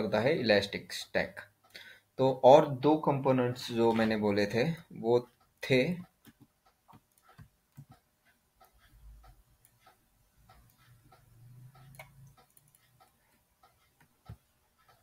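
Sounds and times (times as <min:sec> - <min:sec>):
faint ticking: 0:00.0 - 0:15.0.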